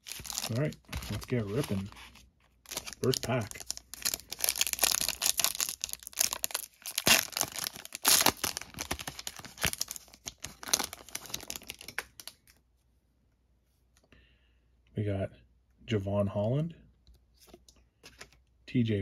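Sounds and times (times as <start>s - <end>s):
foil wrapper tearing and crinkling: 0.0s - 1.9s, 2.7s - 12.4s.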